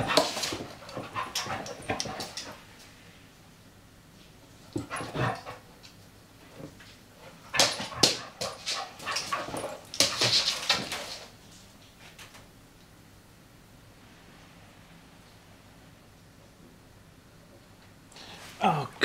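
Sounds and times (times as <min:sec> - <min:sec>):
dogs scuffling: 0:00.0 - 0:02.6, 0:04.7 - 0:12.4.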